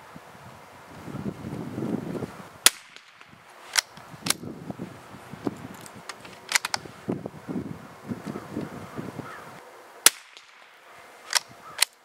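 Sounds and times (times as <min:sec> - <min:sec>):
rifle shot: 0:02.6 - 0:04.4, 0:10.0 - 0:12.0
rifle bolt clicks: 0:06.1 - 0:06.8, 0:11.3 - 0:12.0.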